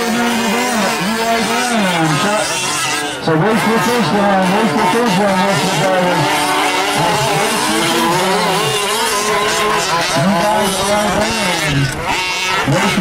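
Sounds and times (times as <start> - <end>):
small two-stroke engines revving: 0.0 - 13.0.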